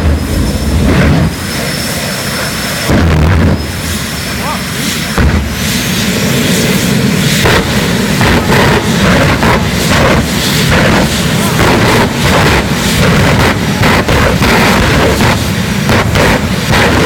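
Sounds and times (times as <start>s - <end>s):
jet engines roaring: 0.0s - 17.0s
afterburner cracks and pops: 7.4s - 17.0s.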